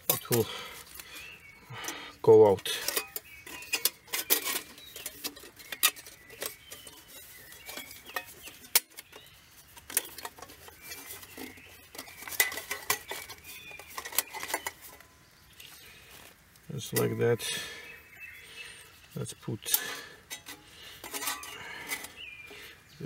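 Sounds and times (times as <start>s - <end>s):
metal panels clinking and rattling: 1.8s - 9.1s, 9.8s - 15.0s, 19.7s - 22.6s.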